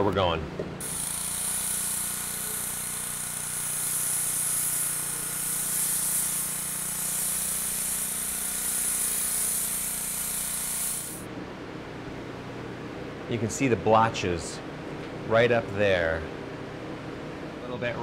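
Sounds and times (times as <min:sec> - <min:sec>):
pressure washer spraying wall: 0:00.8 - 0:11.3.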